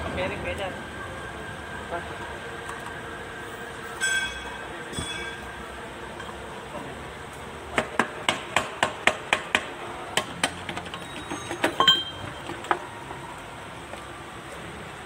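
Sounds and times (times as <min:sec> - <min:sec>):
metal cover clinking and rattling: 0:10.7 - 0:12.6.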